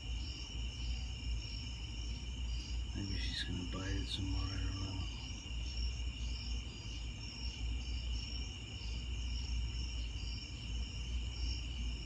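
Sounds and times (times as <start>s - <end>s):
crickets trilling: 0.0s - 12.0s
low steady rumble: 0.9s - 8.0s.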